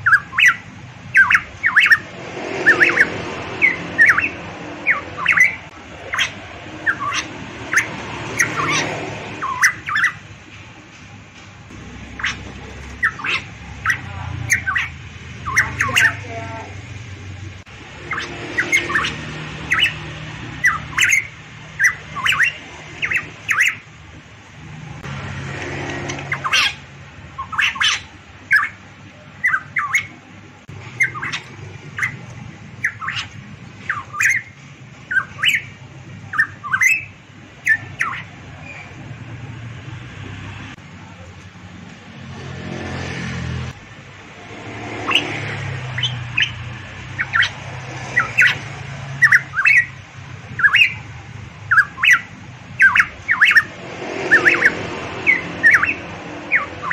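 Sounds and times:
bird whistling calls: 0.0s - 10.2s, 12.1s - 16.7s, 18.0s - 23.8s, 26.2s - 26.8s, 27.4s - 28.8s, 29.4s - 30.2s, 30.9s - 32.2s, 32.8s - 39.0s, 45.0s - 51.1s, 51.7s - 56.9s.

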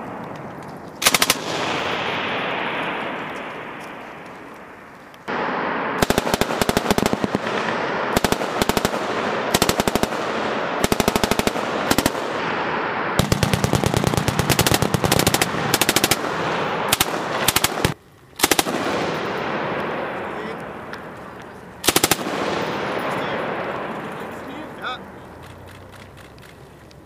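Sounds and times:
machine gun bursts: 1.0s - 1.9s, 13.2s - 19.1s, 21.8s - 23.0s.

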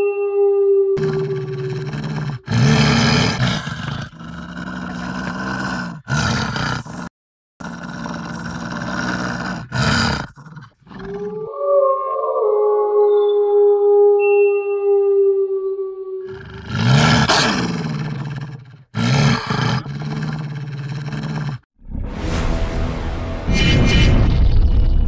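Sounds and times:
wolf howling: 0.0s - 3.2s, 10.2s - 17.7s
wolf growling: 1.0s - 11.6s, 16.2s - 21.7s.

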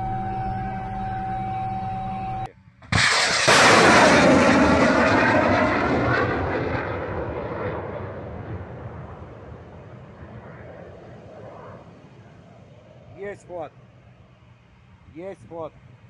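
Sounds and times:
steady electronic tone: 0.0s - 2.5s
missile launch blast: 2.8s - 10.4s.

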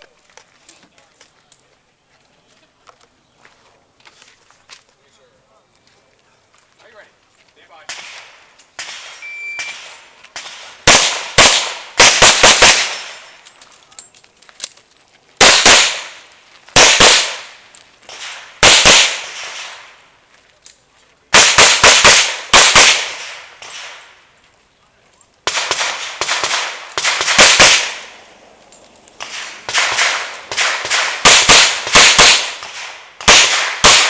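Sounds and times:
shot timer beep: 9.2s - 9.8s.

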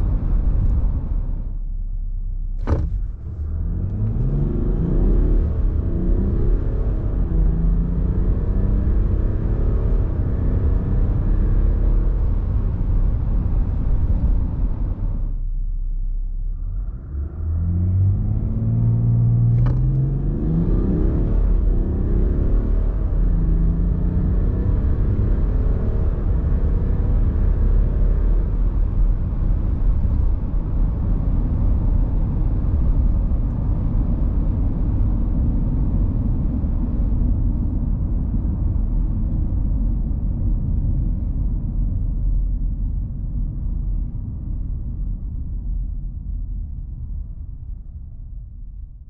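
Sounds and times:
diesel engine rumble: 0.0s - 49.0s
tyre and road noise: 2.6s - 15.4s.

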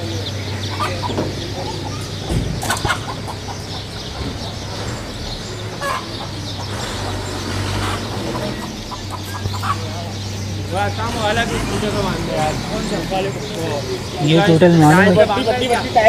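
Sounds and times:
chickens clucking: 0.0s - 16.0s
sharp knocks: 2.2s - 3.2s.

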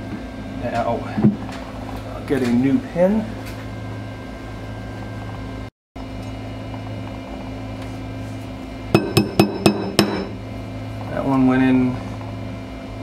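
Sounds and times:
low shop hum: 0.0s - 13.0s
hammer tapping metal pin: 9.0s - 10.4s.

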